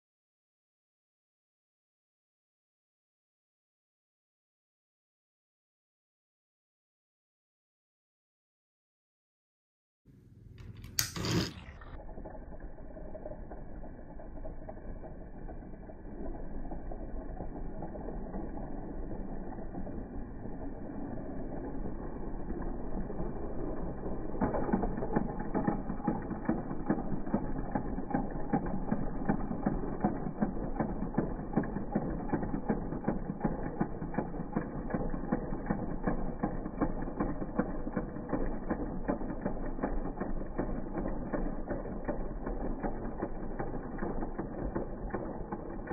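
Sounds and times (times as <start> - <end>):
fast clicking of gears: 10.6 - 45.9
toy train motors whirring: 10.6 - 45.9.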